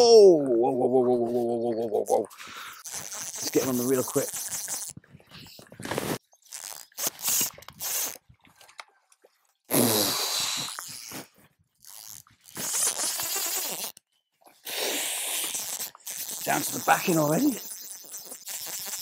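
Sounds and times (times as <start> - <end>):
fly reel drag buzzing: 2.7 - 5.0, 6.0 - 8.2, 10.0 - 14.0, 14.7 - 19.0.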